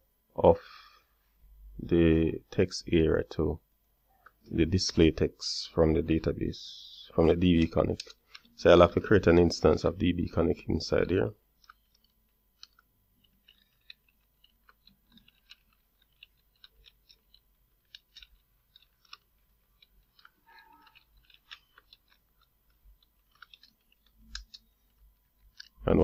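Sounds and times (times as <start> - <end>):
keyboard typing: 11.6 - 26.0.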